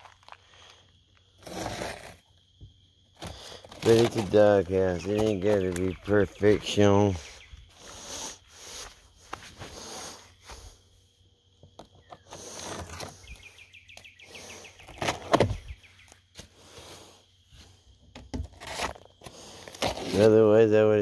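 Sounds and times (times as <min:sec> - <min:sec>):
bird chirping trill: 0:04.8 - 0:07.8, 0:13.2 - 0:16.2.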